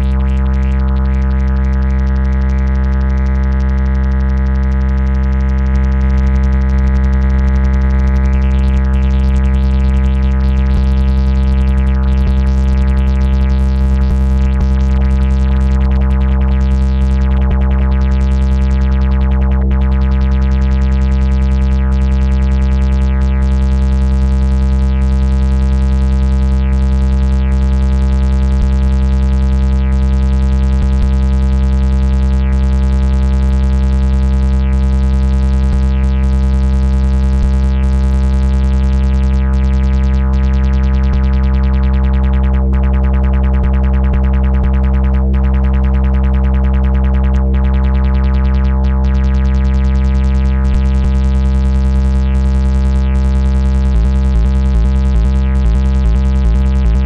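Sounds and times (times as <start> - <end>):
synthesizer low drone chord: 53.9 - 57.0.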